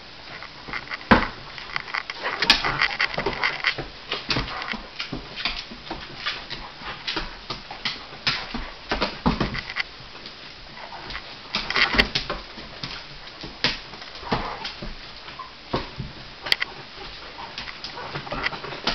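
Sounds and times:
dog claws clicking on hardwood floor: 0.3s - 18.9s.

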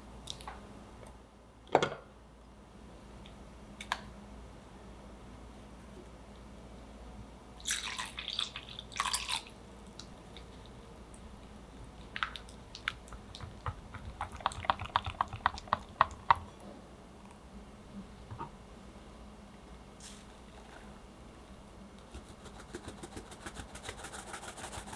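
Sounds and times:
whisk ticking against glass bowl: 13.1s - 16.5s.

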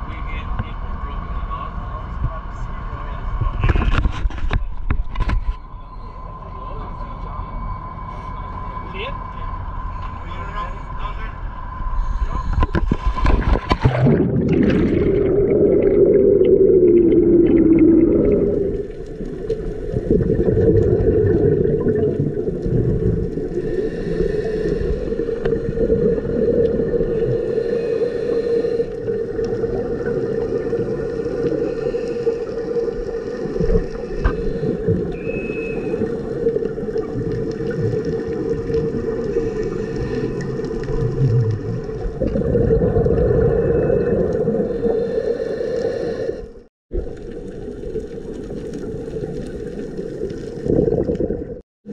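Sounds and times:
muffled underwater drone: 0.0s - 51.9s.

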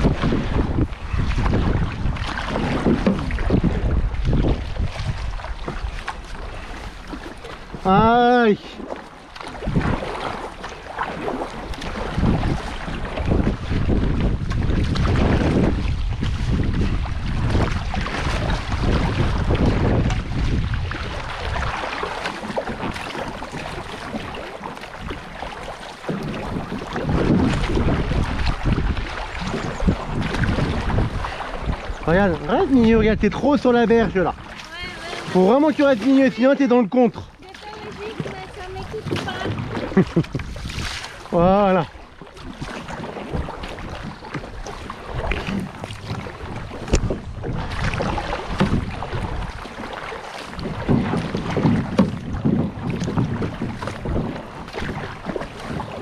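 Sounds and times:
paddle strokes: 0.0s - 56.0s
river water splashing: 0.0s - 56.0s
wind rumbling on microphone: 0.0s - 56.0s.

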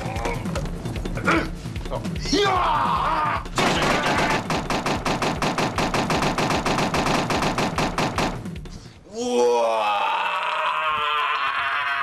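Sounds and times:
rapid sharp cracks: 3.4s - 8.7s.

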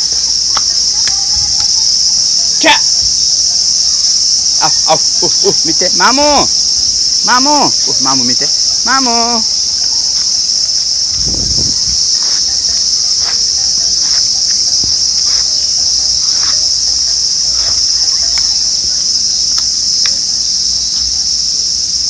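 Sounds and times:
high-pitched insect chorus: 0.0s - 22.0s.

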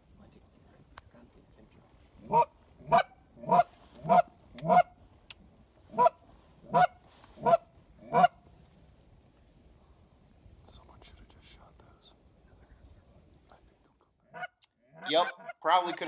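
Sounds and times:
goose honking: 2.2s - 4.9s, 5.9s - 8.4s, 14.3s - 16.0s.

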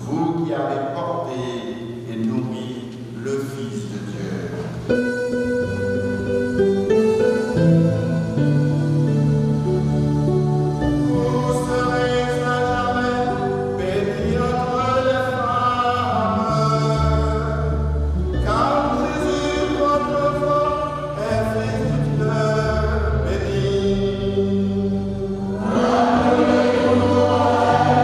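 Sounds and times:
held low accompaniment notes: 0.0s - 28.0s
voices singing a hymn: 9.5s - 28.0s.

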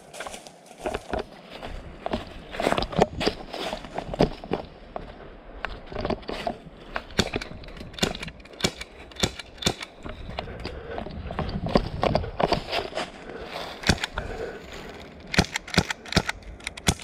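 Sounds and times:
footsteps in dry leaves: 0.0s - 5.2s, 12.5s - 15.3s.

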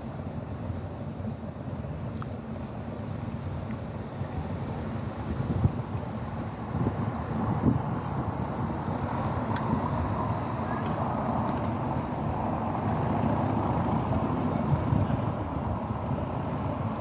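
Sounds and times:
low rumble of motor vehicles: 0.0s - 17.0s.

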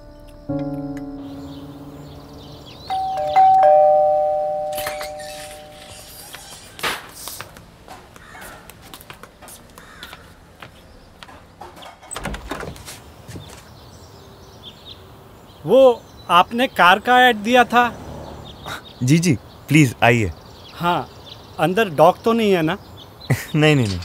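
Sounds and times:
two-tone doorbell chime: 0.6s - 6.0s.

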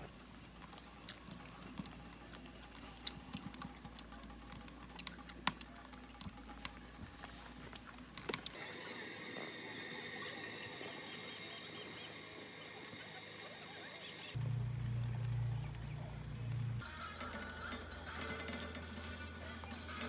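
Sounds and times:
wood fire crackling: 0.0s - 20.0s
steady hiss: 8.5s - 14.4s.

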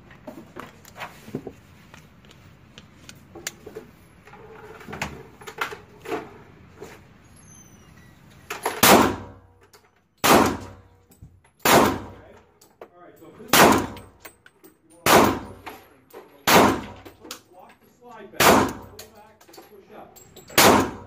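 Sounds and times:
pistol shots echoing: 8.8s - 9.4s, 10.2s - 10.8s, 11.6s - 12.2s, 13.5s - 14.0s, 15.0s - 15.6s, 16.5s - 17.0s, 18.4s - 19.0s, 20.6s - 21.0s.

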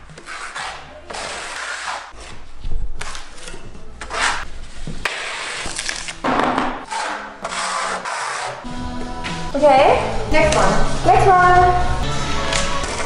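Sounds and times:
trowel scraping adhesive on board: 6.9s - 8.6s.

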